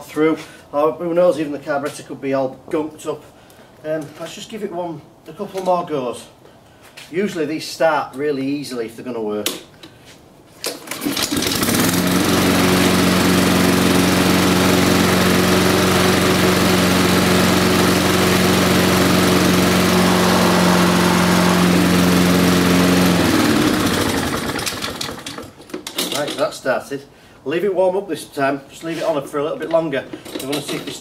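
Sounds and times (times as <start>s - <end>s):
lawnmower engine running: 10.9s - 25.6s.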